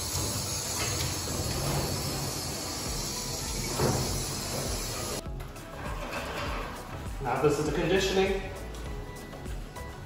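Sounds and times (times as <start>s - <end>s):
shower sprayer water hissing: 0.0s - 5.2s.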